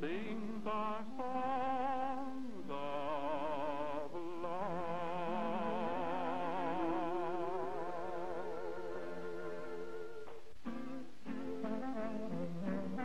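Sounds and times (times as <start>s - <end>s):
man singing with vibrato: 0.0s - 10.2s
instrumental accompaniment: 6.5s - 13.0s.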